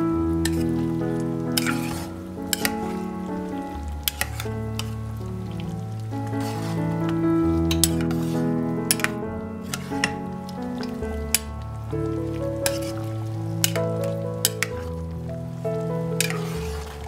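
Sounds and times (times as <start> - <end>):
slow sustained background music: 0.0 - 17.0
metal ladle clinking against pot: 1.6 - 2.9, 4.0 - 5.0, 7.7 - 8.3, 8.9 - 10.2, 13.6 - 14.9, 16.2 - 16.6.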